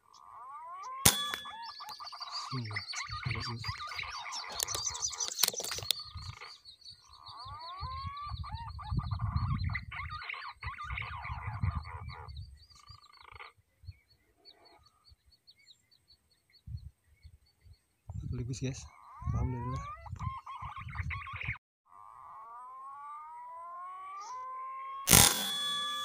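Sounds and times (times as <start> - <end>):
frogs calling: 0.0 - 13.6, 18.6 - 25.6
birds chirping: 0.0 - 26.0
sharp clicks: 4.4 - 6.0, 25.1 - 26.0.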